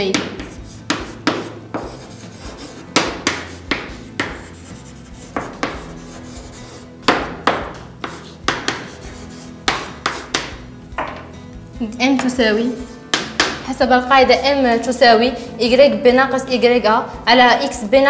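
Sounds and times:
chalk tapping and scraping on blackboard: 0.0 - 11.2, 12.2 - 13.6.

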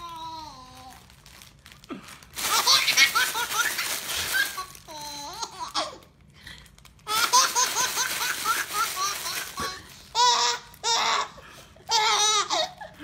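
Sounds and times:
baby belly laughing: 2.4 - 6.0, 7.1 - 13.0
baby giggling: 2.4 - 6.0, 7.1 - 13.0.

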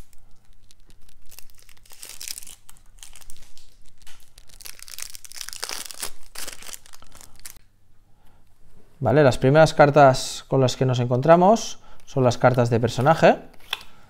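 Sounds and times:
plastic wrap crinkling and tearing: 0.0 - 7.6.

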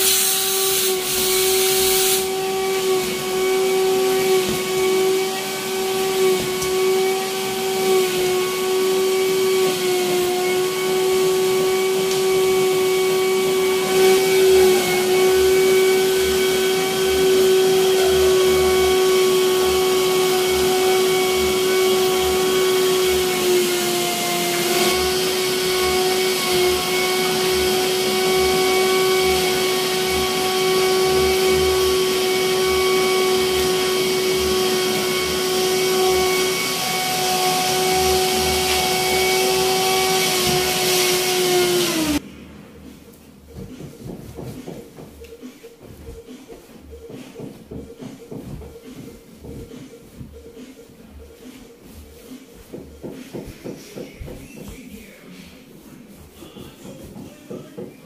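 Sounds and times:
vacuum cleaner motor whine: 0.0 - 42.2.

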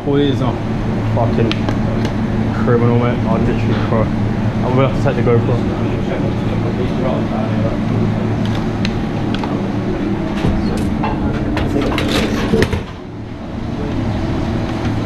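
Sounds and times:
kitchen ventilation hum: 0.0 - 15.0.

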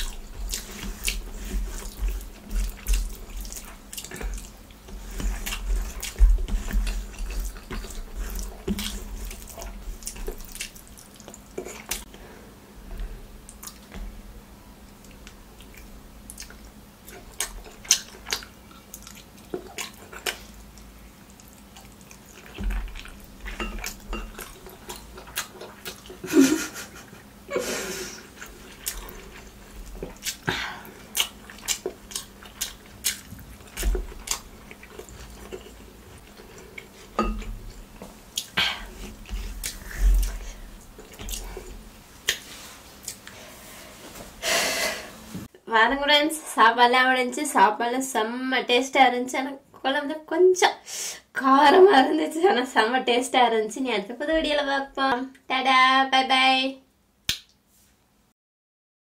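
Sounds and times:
fingers mixing rice: 0.0 - 12.0
wet chewing and smacking: 0.0 - 12.2, 13.4 - 14.1, 14.9 - 26.2, 28.4 - 43.4.

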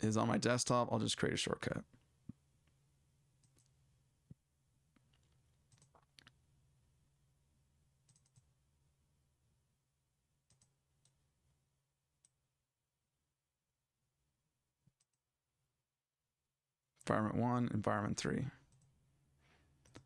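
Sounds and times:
faint steady hum: 0.0 - 12.5, 17.0 - 20.0
computer mouse clicks: 3.4 - 3.8, 4.9 - 6.4, 8.0 - 8.5, 10.5 - 11.2.

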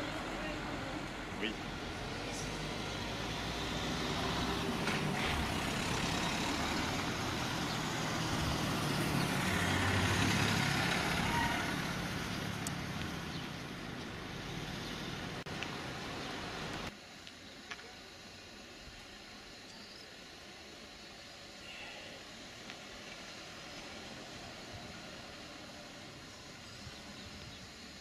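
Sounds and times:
vehicle driving past: 0.0 - 16.6, 22.9 - 27.3.

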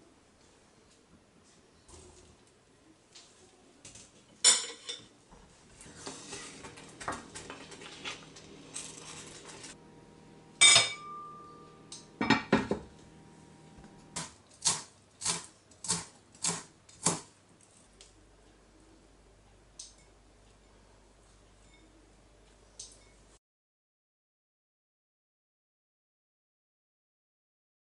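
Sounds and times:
glass lid clinking: 10.6 - 11.6.

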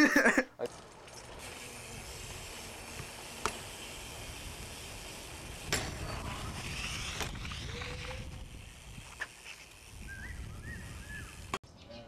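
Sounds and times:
bike rolling on concrete: 0.6 - 11.6
bike landing clack: 2.3 - 10.1.

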